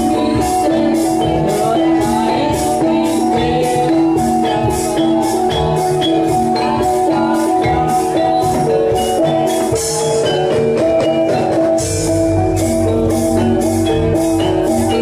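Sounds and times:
low drum: 0:00.0 - 0:15.0
metallic percussion strokes: 0:00.0 - 0:15.0
metallophone notes: 0:00.0 - 0:15.0.

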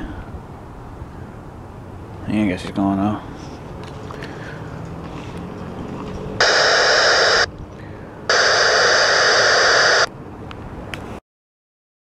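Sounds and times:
radio static bursts: 0:06.4 - 0:07.5, 0:08.3 - 0:10.1.

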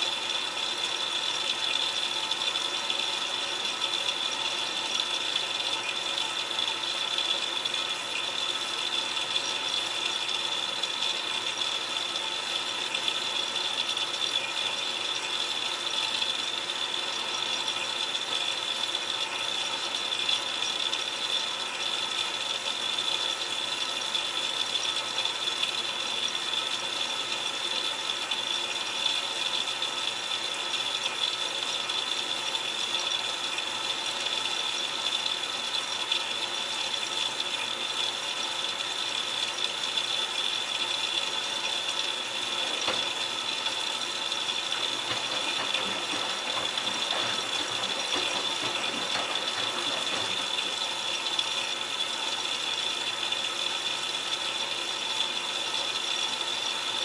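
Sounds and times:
water splashing in washer drum: 0:00.0 - 0:57.0
light rattling and knocks: 0:44.7 - 0:50.9.

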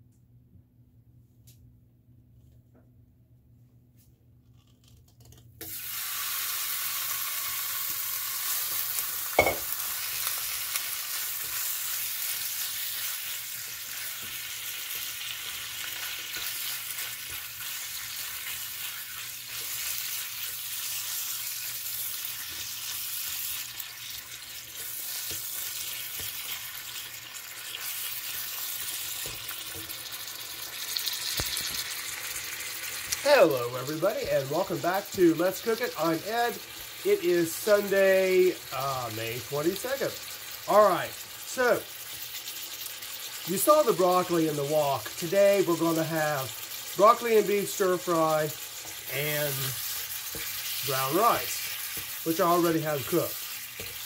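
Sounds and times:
beef sizzling in hot oil: 0:05.6 - 0:54.0
spoon knocking against pan: 0:09.4 - 0:09.7.

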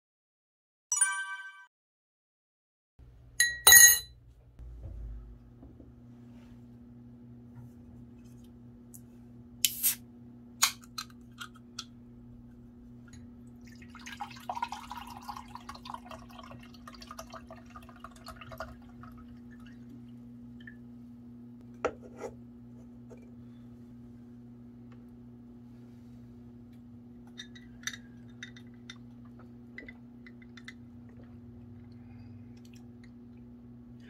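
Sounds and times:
steady low hum: 0:04.2 - 0:34.0
drink pouring into glass: 0:13.5 - 0:19.6.

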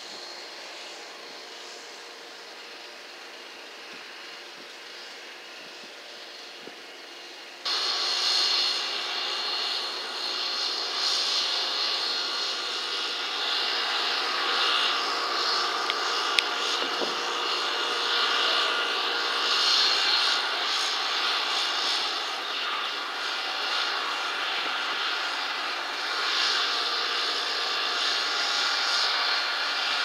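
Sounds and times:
machinery hissing and whining: 0:00.0 - 0:30.0.

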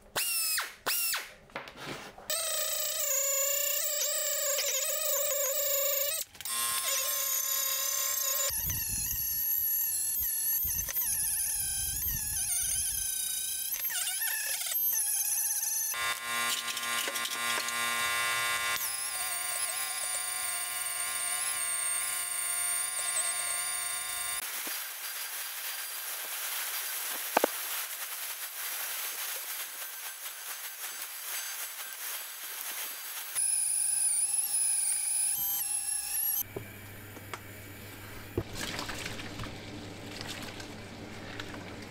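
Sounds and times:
air-powered abrasive tool whining: 0:02.3 - 0:26.3, 0:29.2 - 0:36.5.

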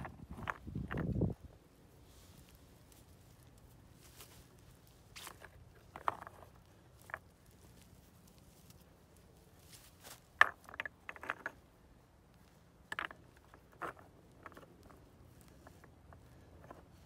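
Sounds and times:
stones knocking on stone: 0:10.3 - 0:11.6.

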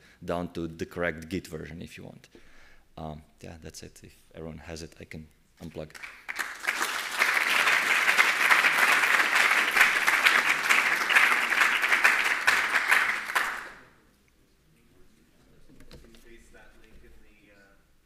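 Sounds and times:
audience applauding: 0:06.0 - 0:13.9.

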